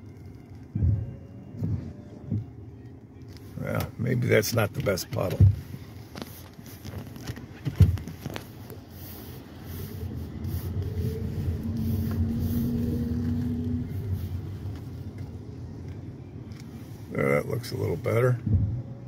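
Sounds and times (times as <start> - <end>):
car engine and tyres on wet street: 0.0 - 19.0.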